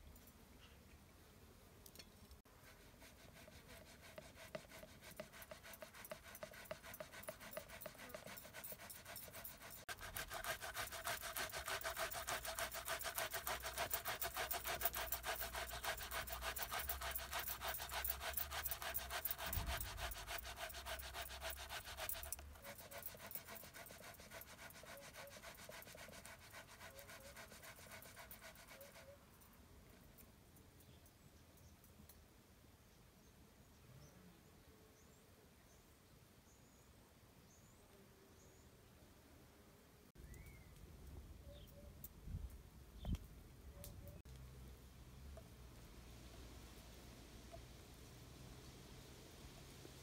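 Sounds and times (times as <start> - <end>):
potato scraping on metal grater: 2.8 - 29.0.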